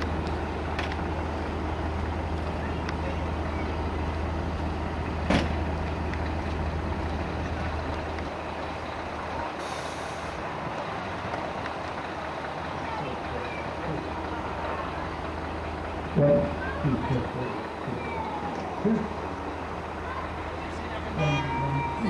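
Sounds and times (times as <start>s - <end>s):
truck engine idling: 0.0s - 22.0s
air brake hiss: 9.6s - 10.4s.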